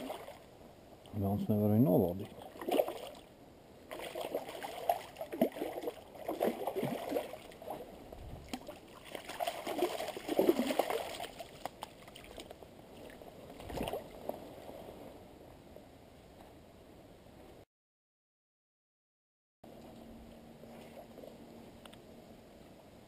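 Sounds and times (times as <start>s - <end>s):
fish thrashing and splashing in water: 2.3s - 3.3s, 3.9s - 14.1s.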